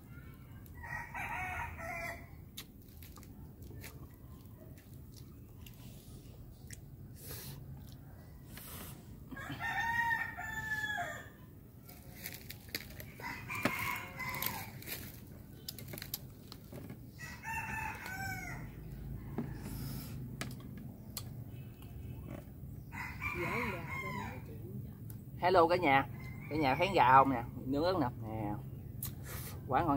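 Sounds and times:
rooster crowing: 0:00.8 - 0:02.3, 0:09.3 - 0:11.4, 0:13.0 - 0:14.9, 0:17.2 - 0:20.1, 0:22.9 - 0:24.5.

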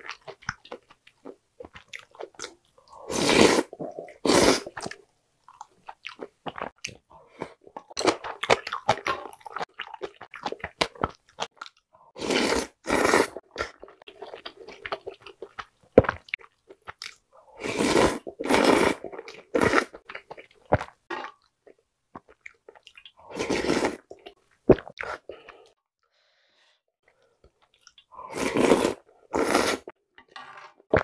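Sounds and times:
loud slurps: 0:03.1 - 0:04.8, 0:12.2 - 0:13.4, 0:28.3 - 0:29.9.

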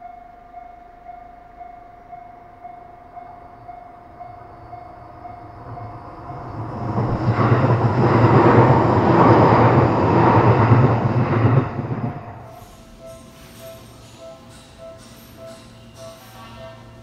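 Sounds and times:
level-crossing bell ringing: 0:00.0 - 0:06.9
electric train passing: 0:00.0 - 0:17.0.

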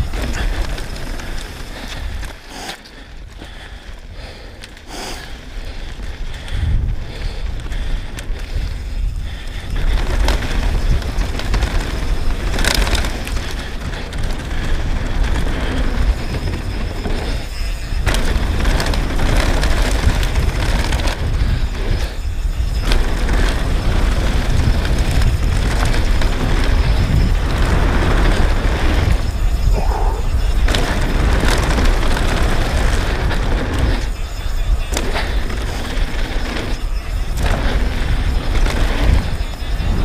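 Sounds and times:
bike knocks and rattles: 0:00.0 - 0:40.0
tyre noise on dirt: 0:00.0 - 0:40.0
wind rumble on microphone: 0:00.0 - 0:40.0.

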